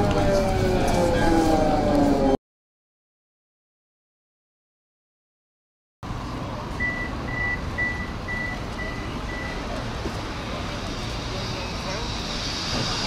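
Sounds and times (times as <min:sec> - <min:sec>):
tram interior rumble: 0:00.0 - 0:02.4, 0:06.0 - 0:13.0.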